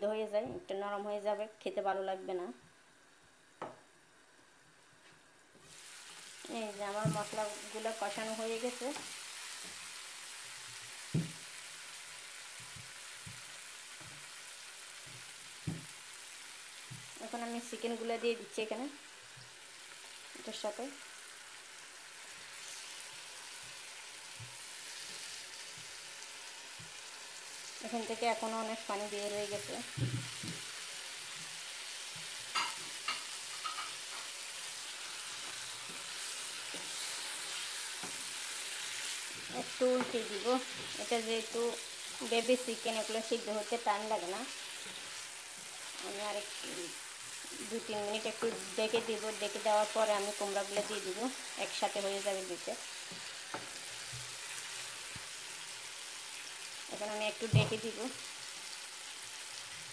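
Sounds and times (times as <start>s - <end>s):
oil sizzling in frying pan: 3.0s - 59.9s.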